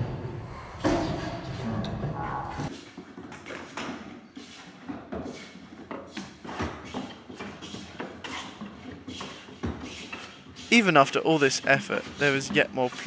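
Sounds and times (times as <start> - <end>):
hand tools scraping plywood: 2.7 - 13.0.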